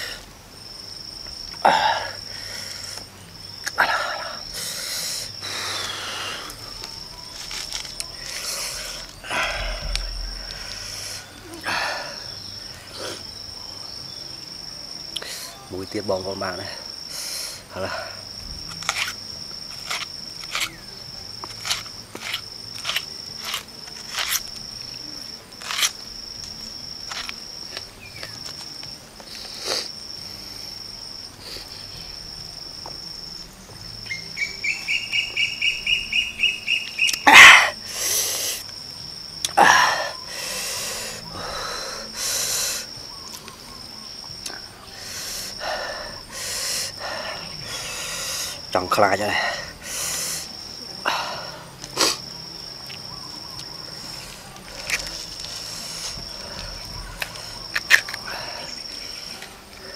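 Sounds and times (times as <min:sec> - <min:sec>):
high insect buzz: 0:00.0 - 0:59.9
person exhaling hissing breaths: 0:01.6 - 0:03.1, 0:03.8 - 0:06.8, 0:07.5 - 0:13.3, 0:16.8 - 0:18.4, 0:37.3 - 0:38.7, 0:39.5 - 0:43.0, 0:44.9 - 0:48.7, 0:49.3 - 0:52.2
high chirps: 0:34.0 - 0:37.8.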